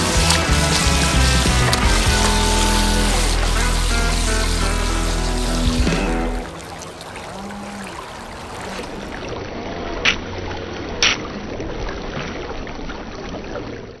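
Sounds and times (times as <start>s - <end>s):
toy boat jet drive running: 0.0s - 5.7s
shallow stream rushing: 0.0s - 13.9s.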